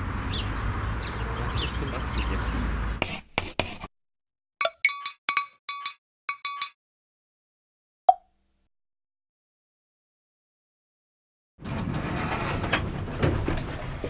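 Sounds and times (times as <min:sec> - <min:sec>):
glassy clinking notes: 0:04.6 - 0:06.8.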